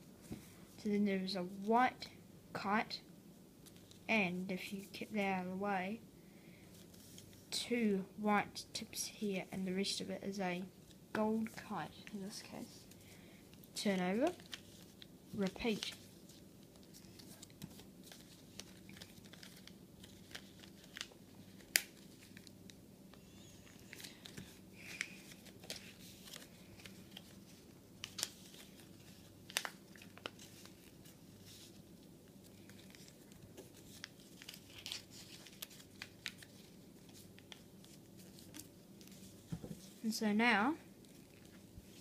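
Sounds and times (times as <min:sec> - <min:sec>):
paper crinkling and crackling: 0:10.8 - 0:40.2, 0:41.0 - 0:42.0.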